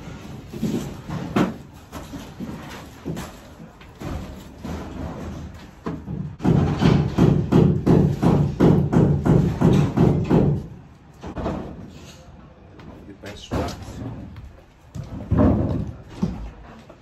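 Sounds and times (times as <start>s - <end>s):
heavy thumps on sheet-metal duct: 4.0s - 11.8s.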